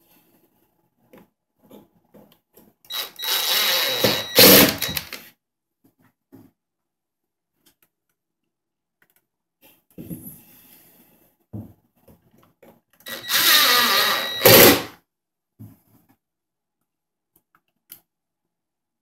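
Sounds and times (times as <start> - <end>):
cordless driver driving screw: 2.9 - 5.2, 13.1 - 14.9
screws and bracket clicking: 2.9 - 5.2, 13.1 - 14.8.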